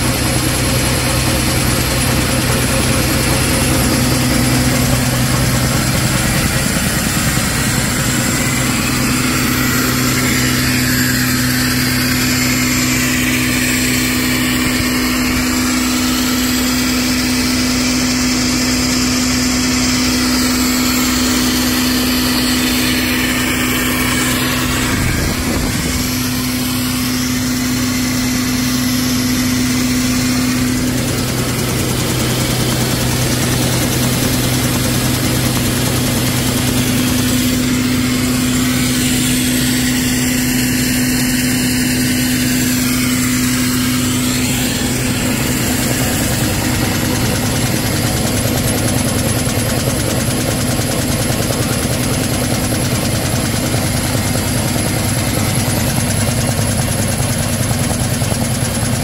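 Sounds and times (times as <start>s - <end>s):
production line machine hum: 0.0s - 59.0s.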